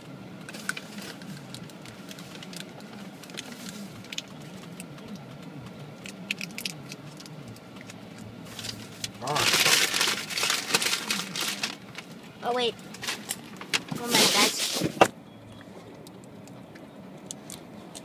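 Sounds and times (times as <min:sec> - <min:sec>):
plastic candy wrapper crinkling: 0:08.6 - 0:12.1.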